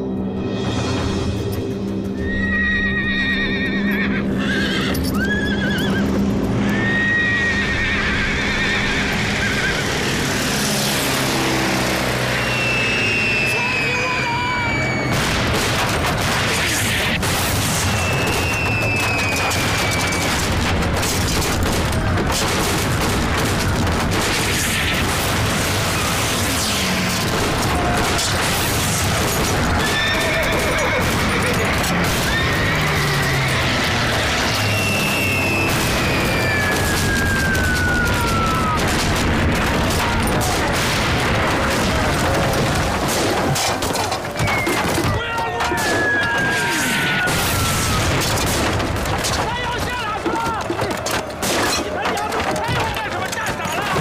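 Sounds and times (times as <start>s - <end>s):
dense battle din: 8.8s - 54.0s
falling bomb whistle: 12.4s - 15.3s, 17.8s - 20.4s, 32.3s - 38.8s
sharp cracks: 15.0s - 54.0s
bombs exploding: 15.1s - 29.9s, 33.6s - 45.2s
gunfire: 15.1s - 30.2s, 34.8s - 49.5s
gunfire bursts: 15.1s - 32.4s.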